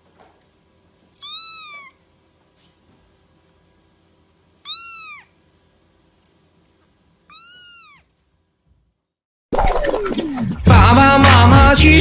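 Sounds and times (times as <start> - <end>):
kitten meowing: 1.2 - 2.0, 4.6 - 5.3, 7.3 - 8.1.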